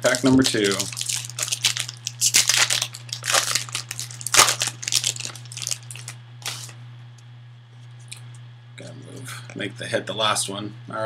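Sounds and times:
foil wrapper crinkling: 0.0 - 6.7
steady low hum: 0.0 - 11.0.

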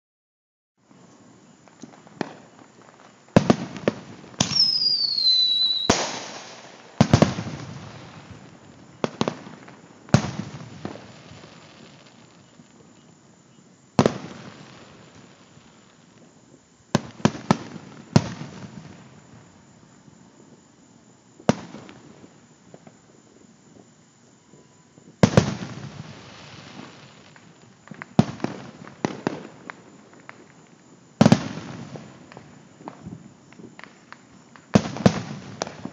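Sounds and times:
fireworks bursting with echo: 0.9 - 35.9
falling firework whistle: 3.3 - 30.6.

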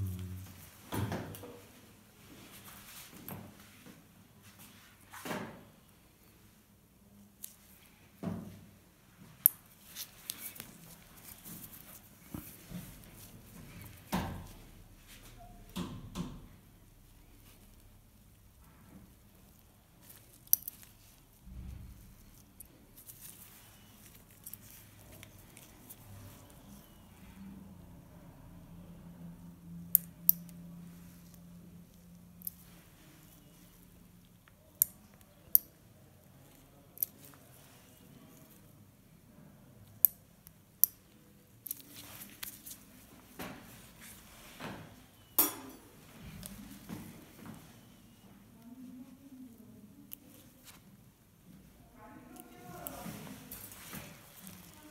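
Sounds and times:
low rumble: 0.0 - 0.7
rustling and scraping: 9.6 - 15.4, 18.6 - 27.0, 41.7 - 45.2, 52.6 - 54.9.

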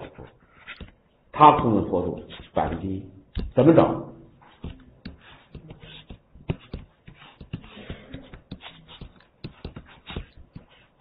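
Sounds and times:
scratchy pen strokes: 2.1 - 2.7, 4.4 - 11.0
sharp clicks and taps: 3.3 - 3.6.

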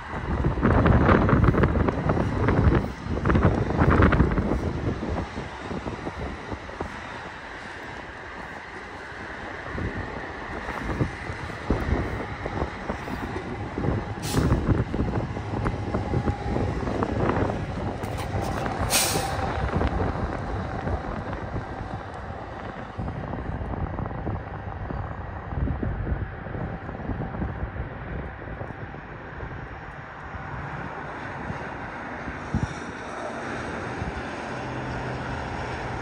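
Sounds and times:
train rolling with wheel clatter: 0.0 - 36.0
brief hisses: 18.9 - 19.4.

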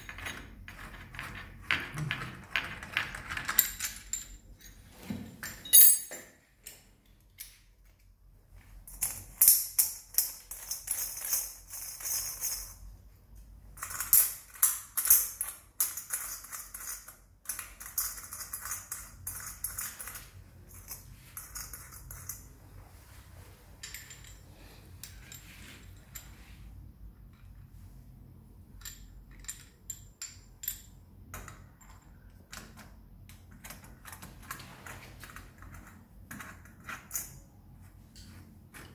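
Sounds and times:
metal flanges clinking and rattling: 0.0 - 7.7, 23.8 - 26.5.

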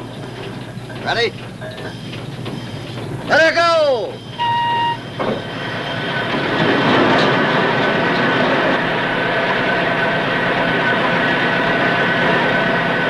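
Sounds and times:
steam engine hissing and clattering: 0.0 - 13.0
steam whistle blast: 4.2 - 5.2.

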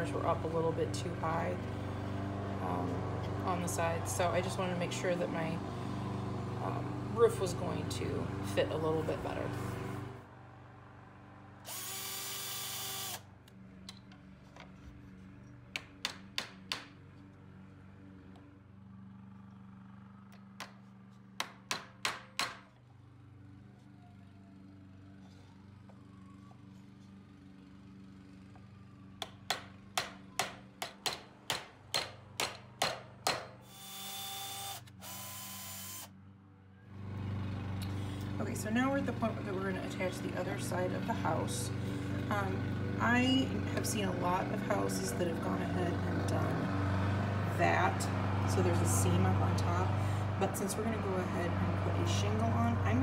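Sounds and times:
cordless drill drilling wood: 11.6 - 13.2, 33.6 - 36.1
hammer striking a nail: 15.7 - 17.0, 20.6 - 20.8, 21.4 - 22.7, 29.2 - 33.6.

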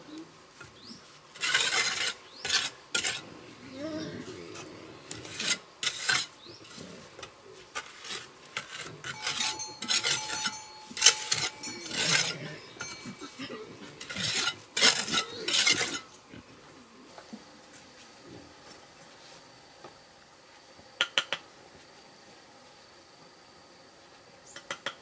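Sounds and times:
trowel scraping mortar: 1.3 - 3.3, 4.5 - 16.1.

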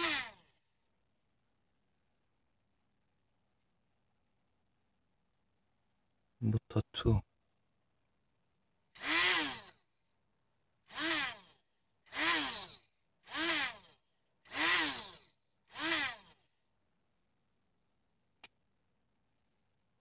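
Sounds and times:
small motors whining: 0.0 - 0.6, 9.0 - 9.8, 10.8 - 16.5.

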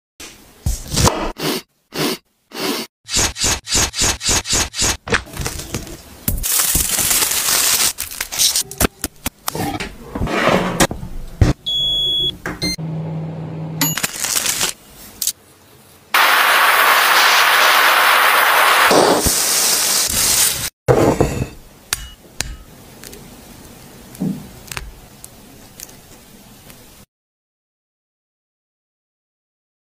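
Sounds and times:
loud hiss: 16.1 - 20.7.

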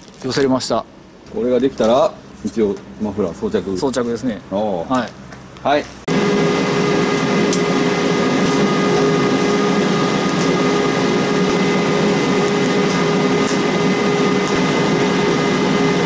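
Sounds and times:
welder humming: 6.1 - 16.0
welding hiss: 7.0 - 16.0.

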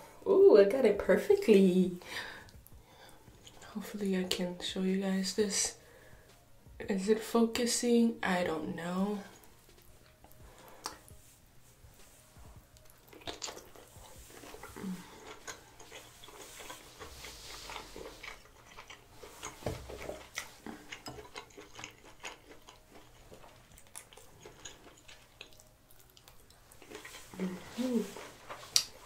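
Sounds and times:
close chewing and wet mouth sounds: 2.4 - 4.4, 9.2 - 29.0
lip smacks and clicks: 10.2 - 11.2, 12.7 - 16.7, 28.6 - 29.0.

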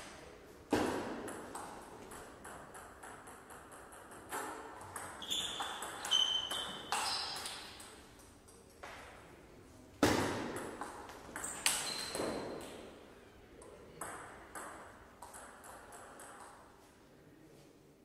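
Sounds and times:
shoes squeaking on floor: 5.2 - 7.8, 11.4 - 12.6.

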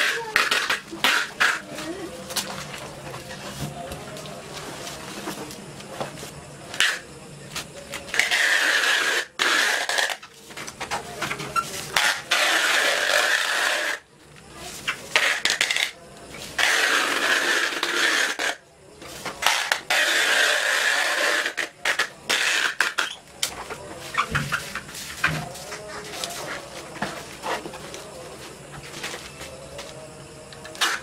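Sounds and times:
adhesive tape screeching off roll: 8.1 - 10.3, 11.9 - 14.0, 16.6 - 18.6, 19.4 - 23.2.

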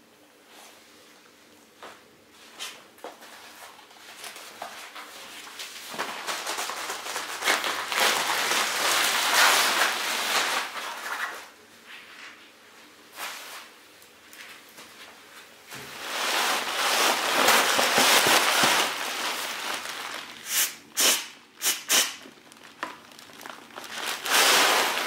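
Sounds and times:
air mattress rustling and crinkling: 14.8 - 20.5, 22.3 - 25.0.

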